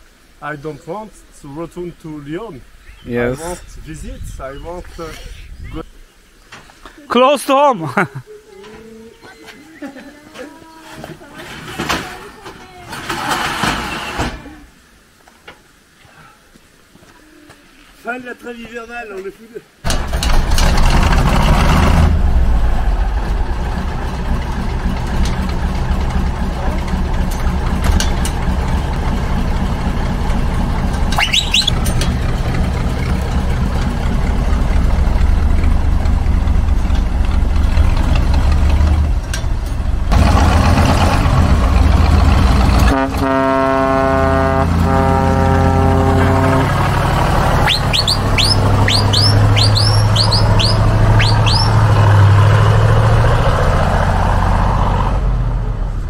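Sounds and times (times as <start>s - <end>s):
birds chirping: 0.4s - 7.7s, 8.5s - 10.8s, 31.1s - 31.8s, 47.4s - 52.2s
diesel truck engine driving off: 19.9s - 56.0s
truck horn blast: 42.8s - 52.3s.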